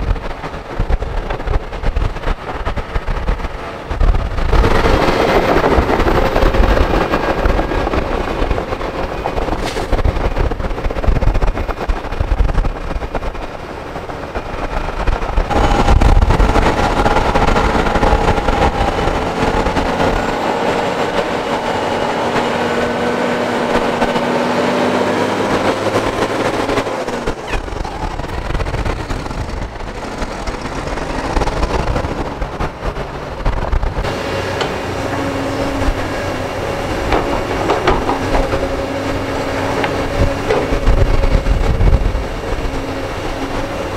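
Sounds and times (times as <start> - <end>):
heavy diesel machinery engines: 0.0 - 43.9.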